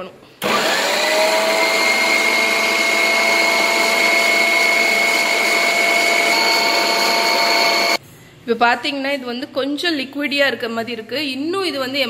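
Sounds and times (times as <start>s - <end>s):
food processor motor whining: 0.4s - 8.0s.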